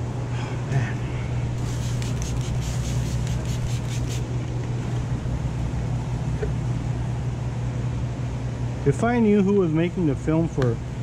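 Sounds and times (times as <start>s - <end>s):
low machine hum: 0.0s - 11.0s
short high hissing strokes: 1.6s - 4.3s.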